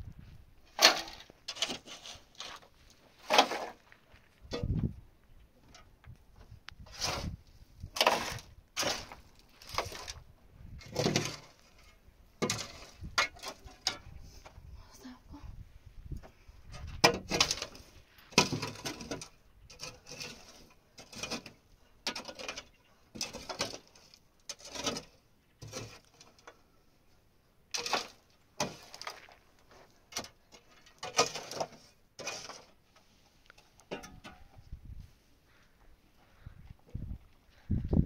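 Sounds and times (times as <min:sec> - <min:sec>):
hand tool scraping into stony soil: 0:00.7 - 0:04.8, 0:06.8 - 0:14.6, 0:16.6 - 0:26.6, 0:27.7 - 0:34.4.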